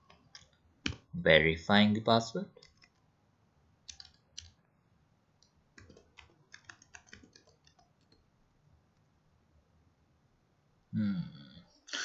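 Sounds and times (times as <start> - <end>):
faint keyboard typing: 0.0 - 1.1, 2.5 - 3.1, 3.8 - 4.7, 5.4 - 8.3.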